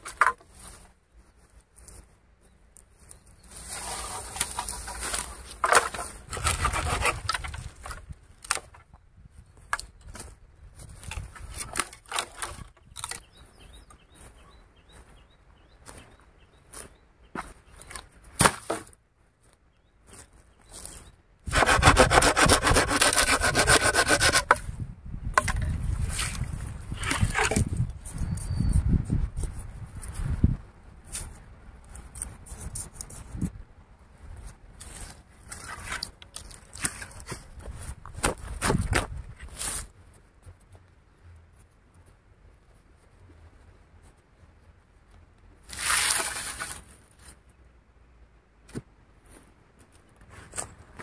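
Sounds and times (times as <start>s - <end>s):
hand saw cutting wood: 21.5s - 24.6s.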